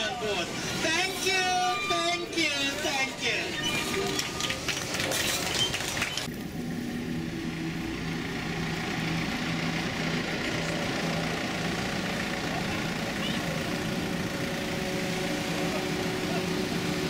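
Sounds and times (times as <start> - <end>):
vehicle engine idling: 4.0 - 17.0.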